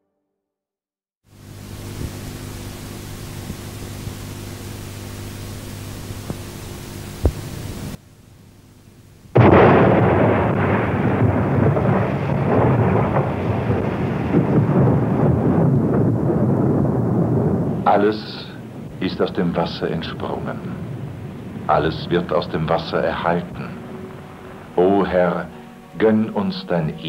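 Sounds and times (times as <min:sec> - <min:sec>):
film soundtrack hum and hiss: 0:01.3 - 0:27.0
thunder rumbling: 0:09.3 - 0:27.0.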